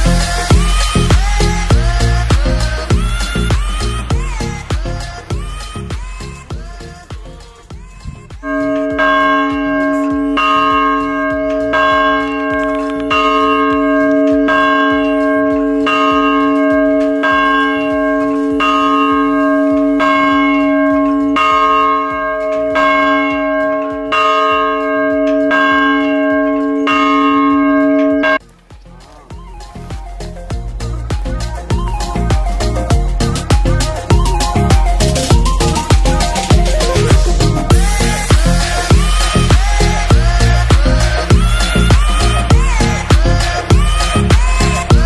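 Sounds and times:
bell tolling: 8.4 - 31.8.

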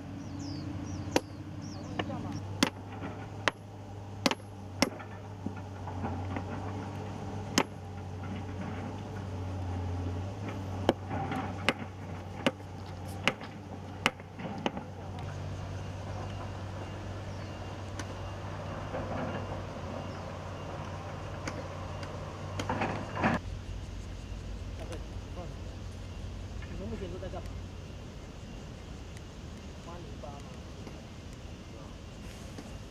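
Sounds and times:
engine humming: 0.0 - 32.9
hand tool striking steel rail: 2.6 - 3.6, 4.2 - 5.2, 7.5 - 7.8, 10.8 - 12.6.

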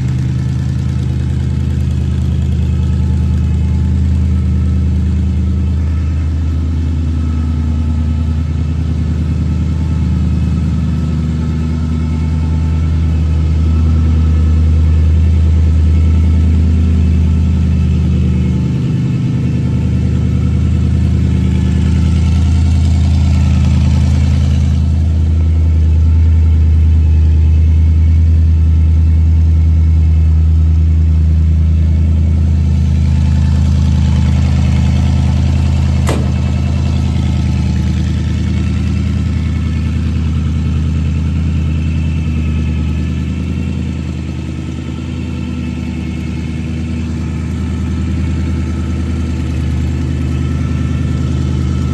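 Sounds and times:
truck engine idling: 0.0 - 51.9
sharp click: 36.1 - 36.6.

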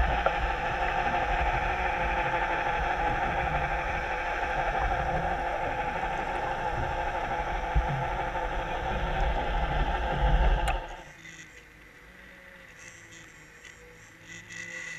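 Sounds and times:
underwater water rushing: 0.0 - 11.0
boat engine through water: 0.0 - 14.9.

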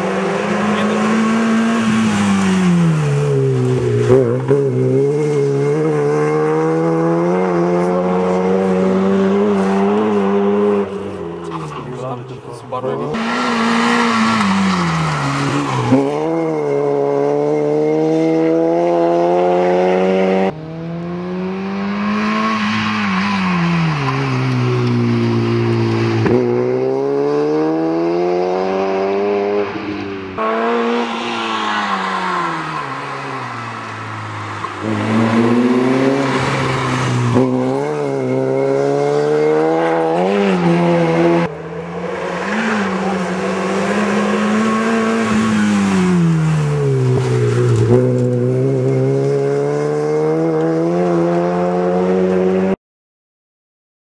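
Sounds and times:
rally car engine revving: 0.0 - 52.8.

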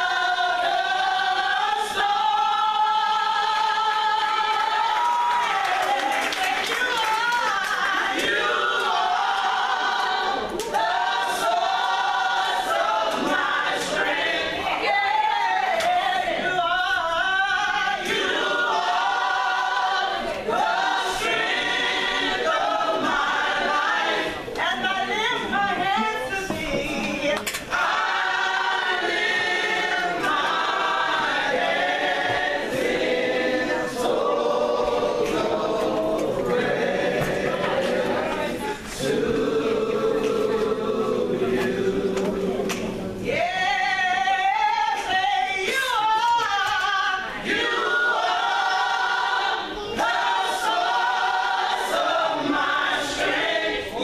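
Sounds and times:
vocal group singing in harmony: 0.0 - 54.0.

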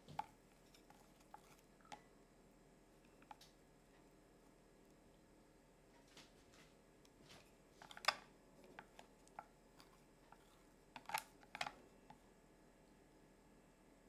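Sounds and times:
chopsticks stirring cream: 0.0 - 2.1, 7.1 - 12.3.

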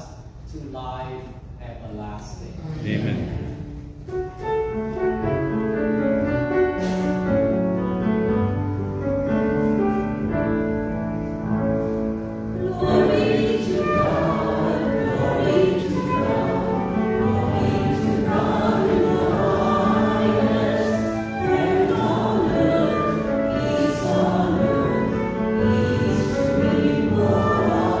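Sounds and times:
instrumental hymn accompaniment: 2.6 - 28.0
choir singing: 12.5 - 28.0.

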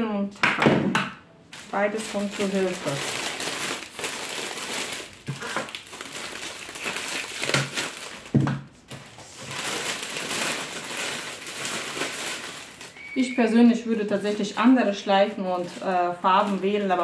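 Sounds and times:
plastic film crinkling: 1.5 - 17.0.

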